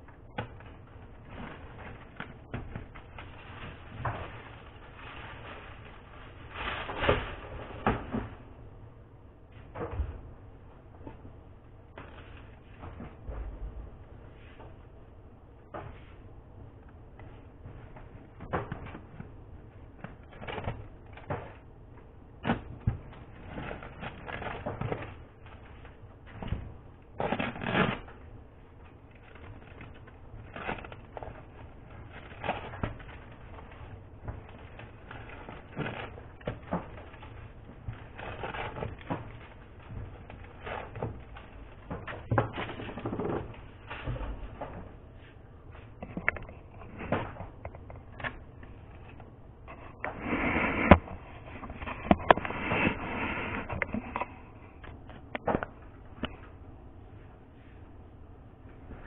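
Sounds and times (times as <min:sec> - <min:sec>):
foil wrappers crinkling: 0:00.2 - 0:07.9, 0:22.4 - 0:44.5.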